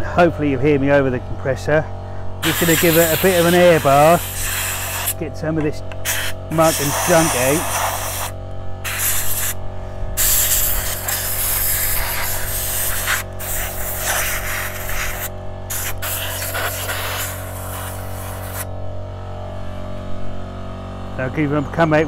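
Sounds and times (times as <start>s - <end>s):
air compressor running: 1.8s - 21.2s
compressed-air blow gun hissing: 2.4s - 5.2s, 6.0s - 9.6s, 10.2s - 18.7s.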